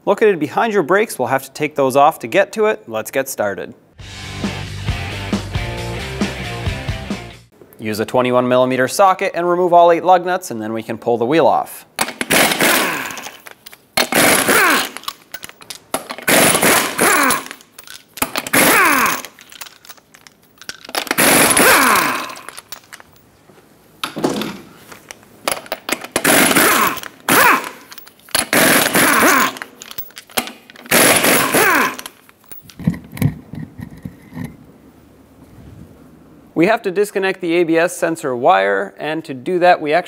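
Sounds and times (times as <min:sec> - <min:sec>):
impact wrench hammering: 0:12.0 - 0:19.6, 0:21.0 - 0:23.0, 0:25.5 - 0:32.2.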